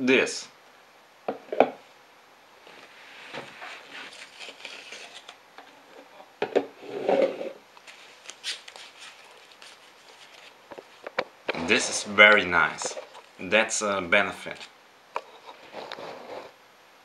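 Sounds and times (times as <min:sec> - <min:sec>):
foam wrap rustling: 0:03.0 - 0:05.4, 0:07.8 - 0:11.1.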